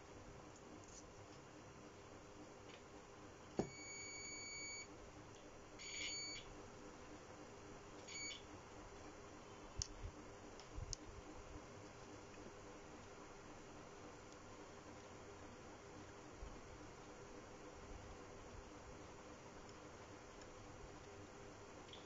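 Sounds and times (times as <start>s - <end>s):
multimeter buzzer beeping: 3.6s - 4.9s, 5.8s - 6.5s, 8.1s - 8.4s.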